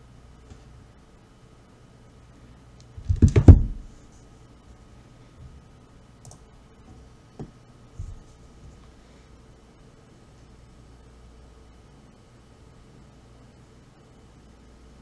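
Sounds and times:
keyboard and mouse clicks: 0:06.2 - 0:06.4.

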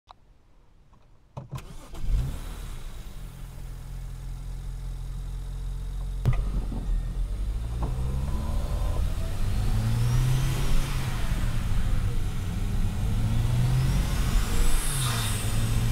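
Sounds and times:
car engine starting and idling: 0:01.4 - 0:15.9
click inside car: 0:06.0 - 0:06.9.

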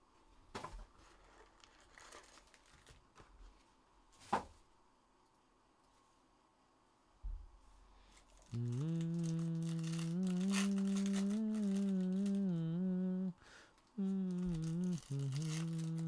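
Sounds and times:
foil pack crinkling and tearing: 0:01.0 - 0:03.1, 0:08.6 - 0:12.4, 0:14.5 - 0:16.0
man humming: 0:08.5 - 0:16.0.

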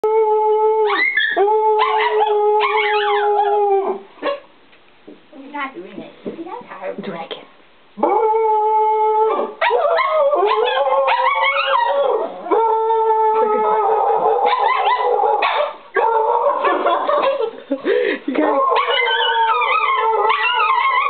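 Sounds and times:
dogs howling: 0:00.0 - 0:04.1, 0:08.0 - 0:17.5, 0:18.4 - 0:21.0
dogs yipping: 0:00.9 - 0:03.6, 0:09.3 - 0:12.7, 0:13.4 - 0:17.6, 0:18.5 - 0:21.0
person howling: 0:11.0 - 0:14.5.

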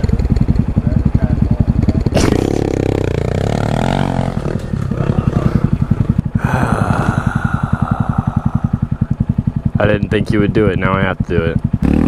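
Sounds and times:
dirt bike engine idling: 0:00.0 - 0:12.0
distant dirt bike engine: 0:00.0 - 0:12.0.

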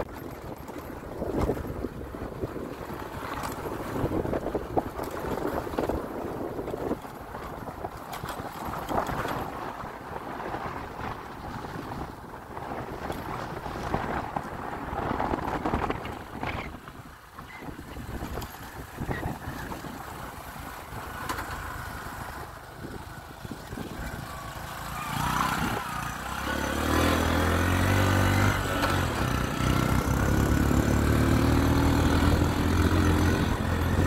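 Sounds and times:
motorbike engine rumbling: 0:00.0 - 0:34.0
wind buffeting microphone: 0:00.0 - 0:34.0.

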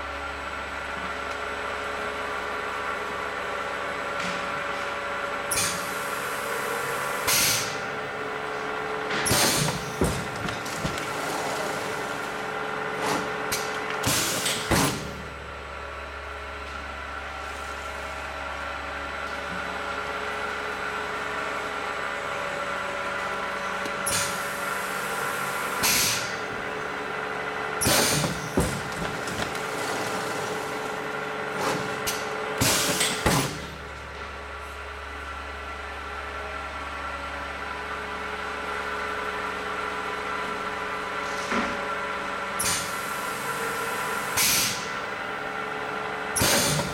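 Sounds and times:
machine hum: 0:00.0 - 0:41.2.

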